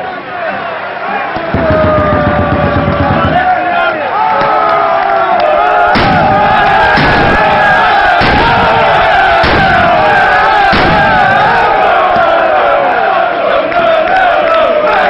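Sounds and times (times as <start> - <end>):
football supporters chanting: 0.0 - 15.0
loud thuds: 6.0 - 12.4.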